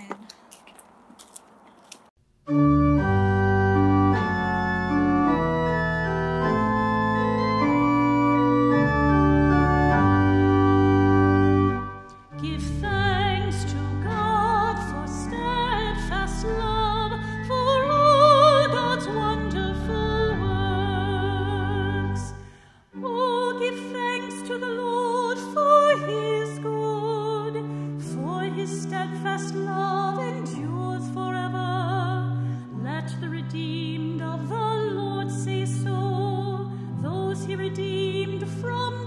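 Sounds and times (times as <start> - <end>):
church organ chords: 2.5 - 23.1
person singing with vibrato: 12.3 - 39.0.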